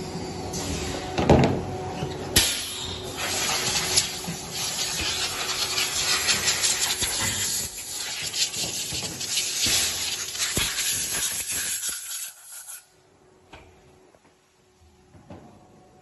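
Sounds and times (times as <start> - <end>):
machine hissing: 2.4 - 12.8.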